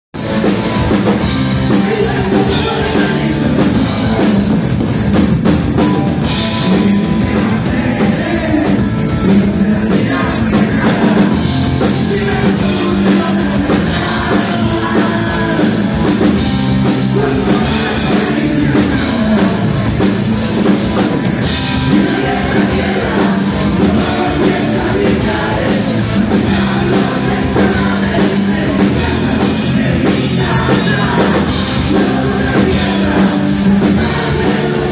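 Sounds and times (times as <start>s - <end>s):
live rock band playing: 0.1s - 34.9s
person singing: 1.5s - 4.6s, 6.2s - 20.3s, 21.6s - 34.9s.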